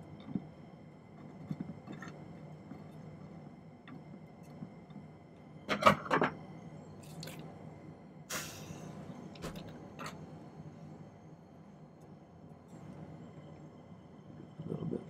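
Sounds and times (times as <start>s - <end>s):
short hiss: 8.3s - 8.9s.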